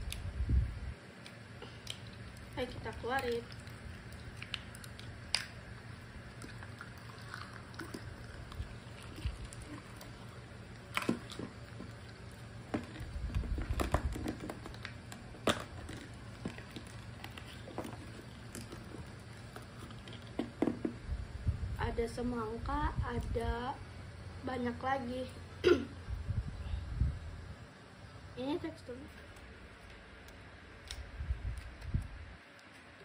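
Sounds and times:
slime squishing and crackling: 1.2 - 20.9.

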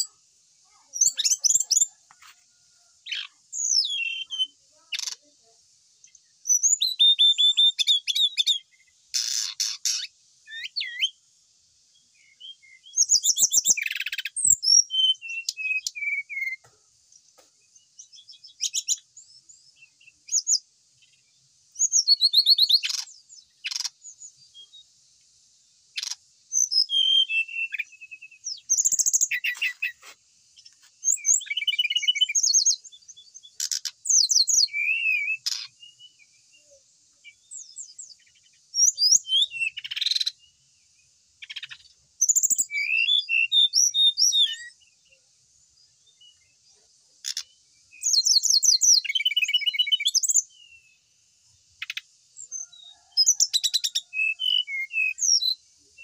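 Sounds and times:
bird singing high trills: 0.0 - 2.0, 3.0 - 5.3, 6.0 - 11.2, 12.0 - 16.6, 21.8 - 24.9, 25.9 - 30.0, 31.0 - 40.6, 41.4 - 45.2, 47.2 - 51.0, 51.8 - 56.0.

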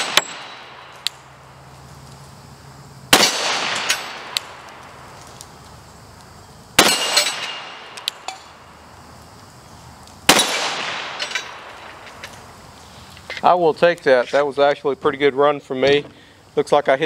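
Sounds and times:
metallic clanks of steel target: 0.0 - 1.2, 3.2 - 4.5, 6.8 - 8.6, 10.3 - 12.3
pistol shots ringing: 0.0 - 1.4, 3.1 - 4.8, 6.8 - 8.6, 10.3 - 12.1.

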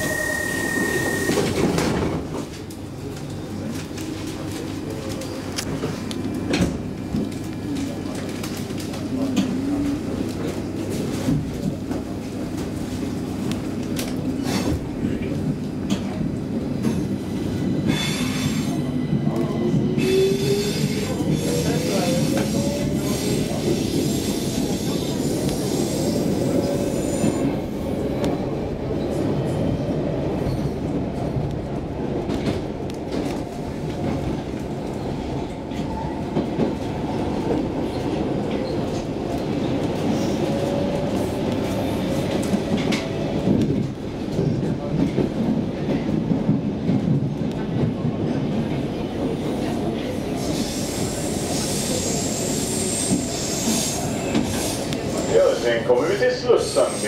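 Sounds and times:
train wheels rumbling on track: 0.0 - 57.0.

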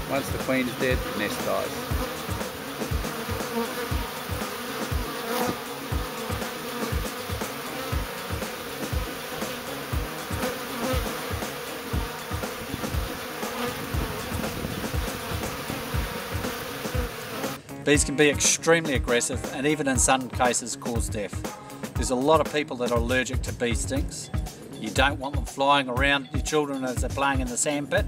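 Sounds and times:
low thumps: 0.0 - 17.2
bees buzzing: 0.0 - 18.2.

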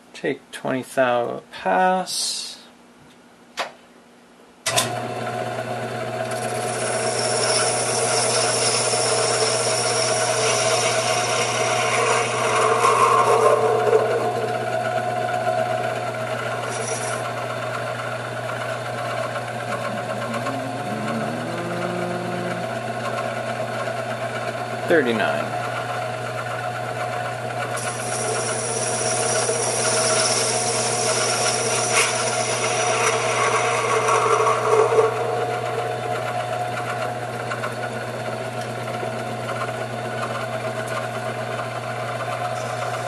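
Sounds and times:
lathe motor running: 6.2 - 43.0
high hiss of tool cutting brass: 27.8 - 33.6.

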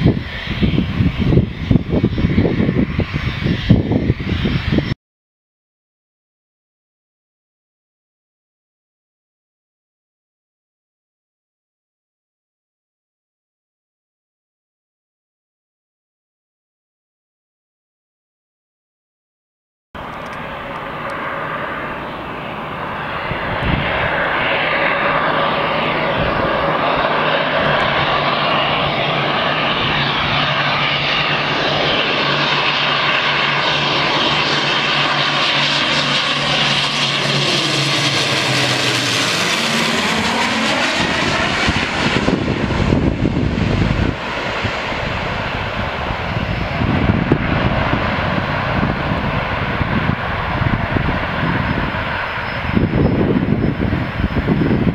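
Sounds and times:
aircraft rumbling down runway: 0.0 - 5.0, 20.0 - 54.9
propeller airliner drone: 0.0 - 5.0, 20.0 - 54.9.

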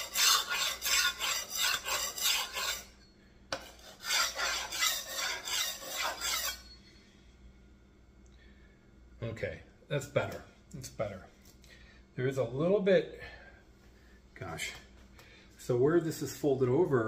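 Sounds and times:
knife scraping on whetstone: 0.0 - 6.8.

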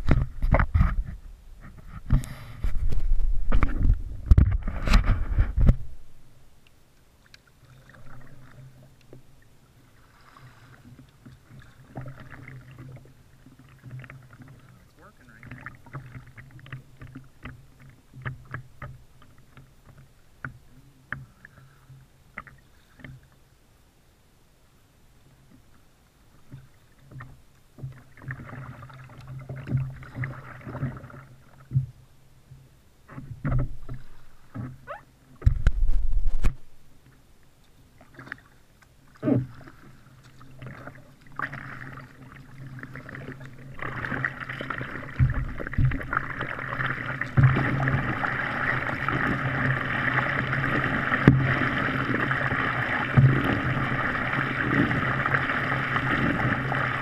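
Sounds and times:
water rushing along hull: 0.0 - 57.0
paddle splashing: 7.2 - 23.4, 25.5 - 57.0
paddle knocking against kayak: 42.9 - 57.0.

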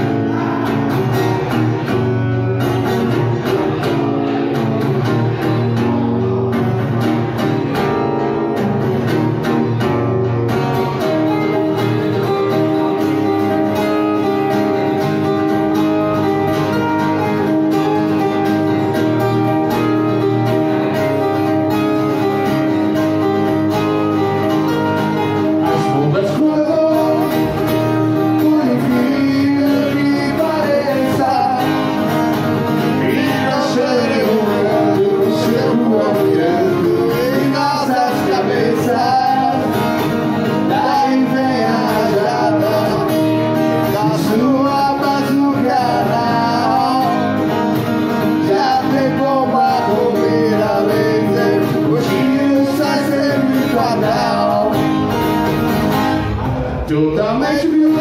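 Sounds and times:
guitars strummed and picked: 0.0 - 58.0
person singing: 25.2 - 47.6, 48.2 - 55.1, 56.4 - 58.0.

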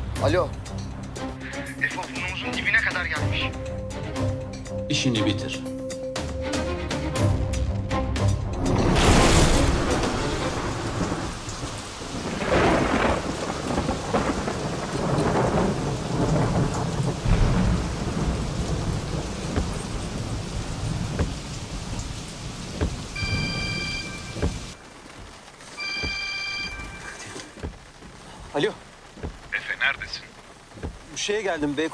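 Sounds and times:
heavy rain: 0.0 - 5.6, 6.5 - 31.9
rolling thunder: 8.6 - 24.8
electronic phone ringtone: 23.2 - 24.4, 25.8 - 27.2.

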